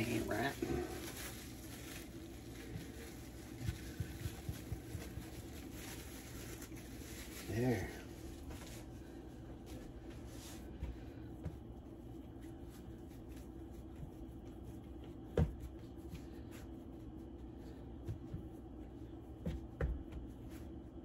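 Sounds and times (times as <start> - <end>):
hands rubbing and patting dough: 0.0 - 21.0
dough thumping on board: 15.0 - 16.2, 19.4 - 20.4.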